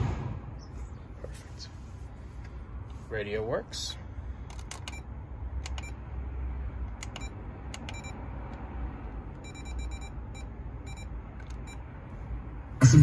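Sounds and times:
steady low rumble: 0:00.0 - 0:08.2
car stereo key-press beeps: 0:04.8 - 0:05.1, 0:05.7 - 0:06.0, 0:07.0 - 0:08.2, 0:09.4 - 0:11.8.

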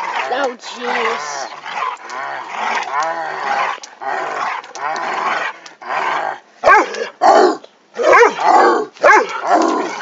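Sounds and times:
dog growling and barking: 0:00.0 - 0:10.0.

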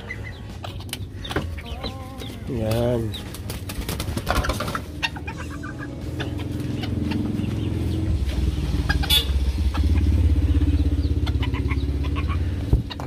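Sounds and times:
vehicle engine running: 0:04.8 - 0:13.0.

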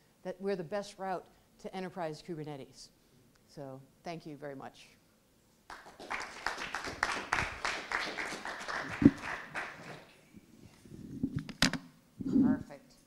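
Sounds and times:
audience applauding: 0:05.7 - 0:10.2.

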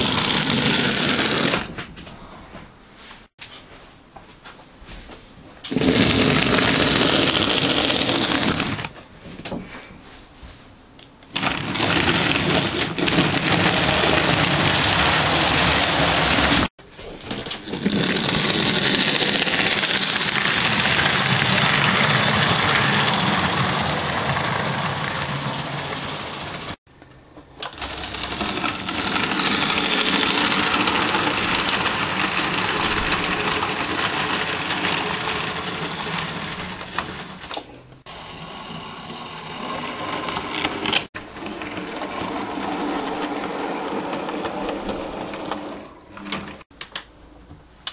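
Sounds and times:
model train motor whirring: 0:00.0 - 0:01.7, 0:05.7 - 0:08.9, 0:11.4 - 0:16.7, 0:17.6 - 0:26.8, 0:27.6 - 0:37.5.

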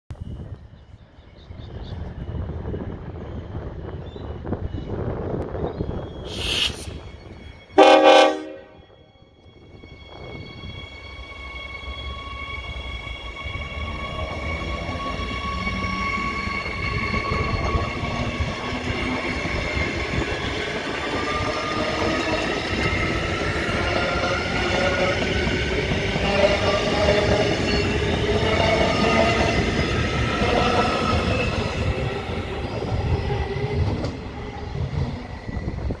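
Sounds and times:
train wheels rumbling on rails: 0:09.4 - 0:36.0.

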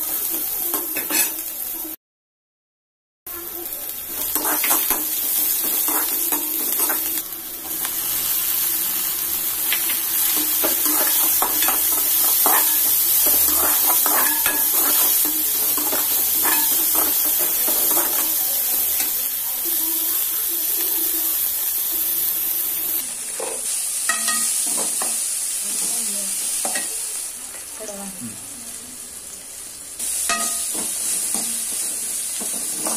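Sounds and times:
vegetables sizzling in hot oil: 0:00.0 - 0:02.0, 0:03.3 - 0:32.9
steel spoon scraping a pan: 0:01.0 - 0:01.4, 0:04.2 - 0:07.8, 0:09.7 - 0:18.4, 0:30.2 - 0:32.9.

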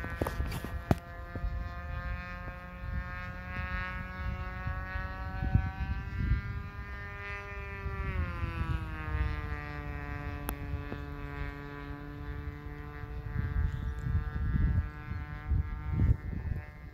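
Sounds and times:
model plane engine buzzing: 0:00.0 - 0:16.9
wind buffeting microphone: 0:00.0 - 0:16.9.

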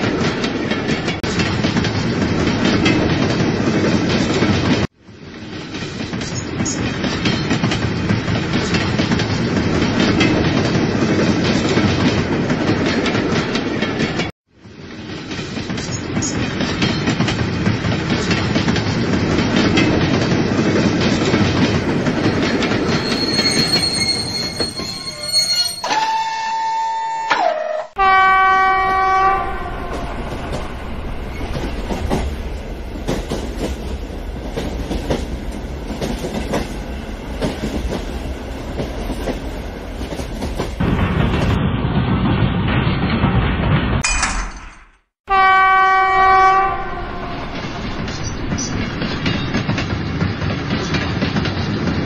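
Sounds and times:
train horn blasts: 0:25.9 - 0:30.0, 0:45.3 - 0:47.6.

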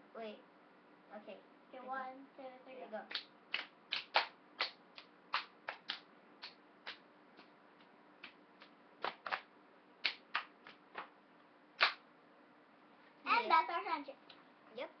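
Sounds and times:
children's hands clapping: 0:03.1 - 0:07.5, 0:08.2 - 0:11.2, 0:11.8 - 0:12.0.

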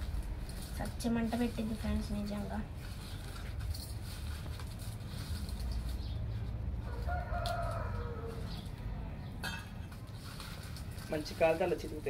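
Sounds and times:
rooster crowing: 0:06.8 - 0:09.1.

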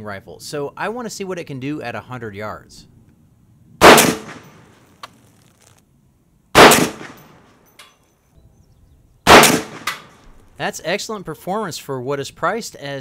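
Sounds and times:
rifle shots: 0:03.8 - 0:05.0, 0:06.5 - 0:07.5, 0:09.3 - 0:10.3.

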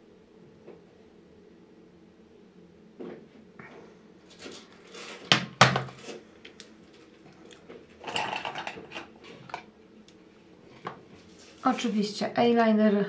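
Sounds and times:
items clattering on a table: 0:04.3 - 0:06.2, 0:07.5 - 0:09.7.

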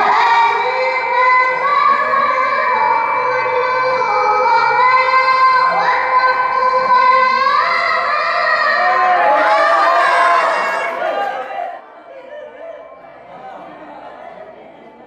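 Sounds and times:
girl reciting melodically: 0:00.0 - 0:11.0.

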